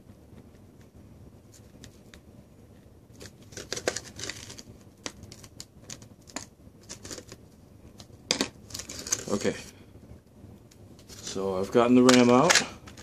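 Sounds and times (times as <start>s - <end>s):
plastic packaging crackling: 3.1s - 9.6s, 11.0s - 13.0s.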